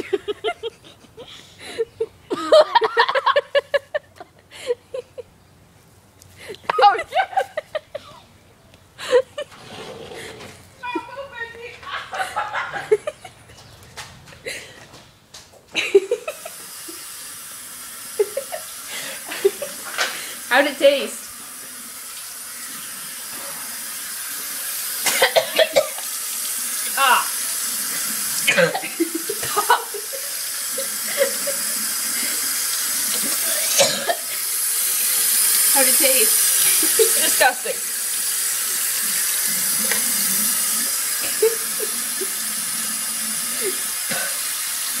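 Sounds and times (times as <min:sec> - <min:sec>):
faucet running into sink: 0:16.1 - 0:45.0.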